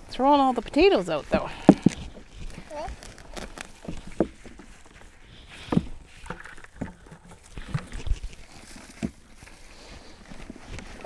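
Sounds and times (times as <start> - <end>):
hands rooting through dry soil: 0.0 - 11.0
toddler vocalizing: 2.7 - 3.4.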